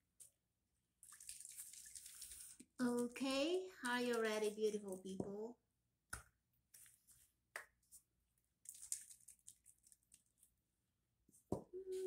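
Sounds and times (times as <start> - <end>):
person humming: 11.7 - 12.0.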